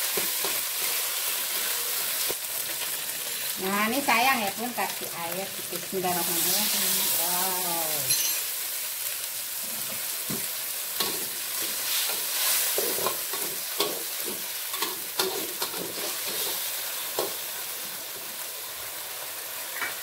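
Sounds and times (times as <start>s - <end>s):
paste sizzling in hot oil: 0.0s - 20.0s.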